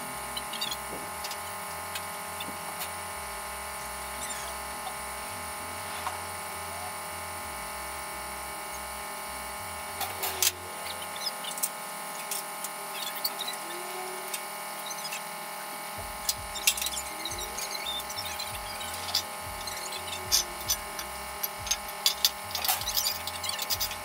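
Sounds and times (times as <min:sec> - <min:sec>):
steady high whine: 0:00.0 - 0:24.0
bird chirps: 0:16.5 - 0:20.6.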